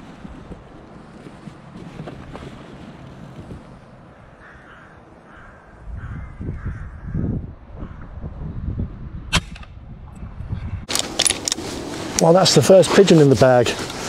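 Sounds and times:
wind buffeting microphone: 0.0 - 14.0
rooks cawing: 4.0 - 8.1
airgun shot: 9.3 - 9.8.

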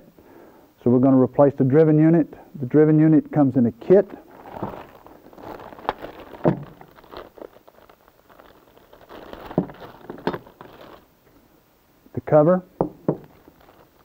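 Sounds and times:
plastic bag crinkling: 4.1 - 11.2, 12.8 - 14.0.

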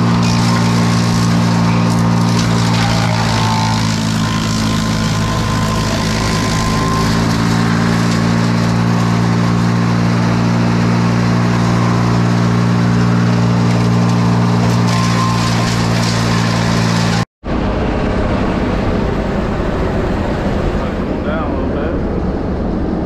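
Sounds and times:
branches fed into chipper: 0.0 - 17.2
wood chipper engine running: 0.0 - 23.0.

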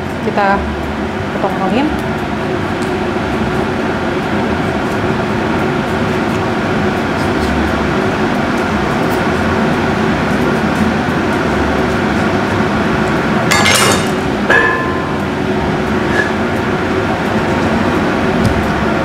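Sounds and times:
droning background hum: 0.0 - 19.0
kitchen utensils clinking: 13.5 - 15.3.

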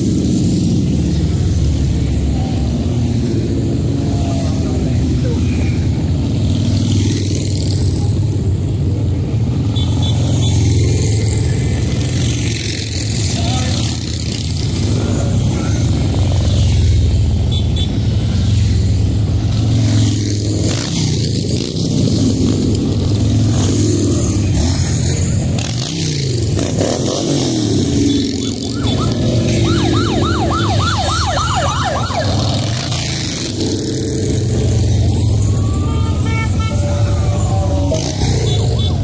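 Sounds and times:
motorcycle engines rumbling: 0.0 - 39.0
siren sweeping up and down: 27.8 - 33.7.

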